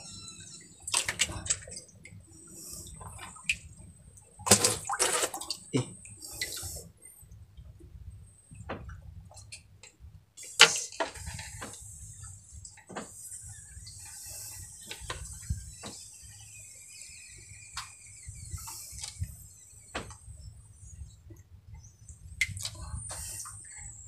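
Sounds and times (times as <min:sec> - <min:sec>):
soft clicks and knocks handling fish: 0:08.5 - 0:13.2.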